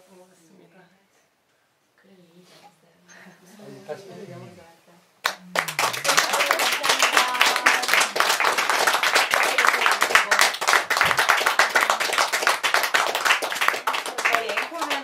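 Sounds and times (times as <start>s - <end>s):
audience applause: 5.2s - 15.0s.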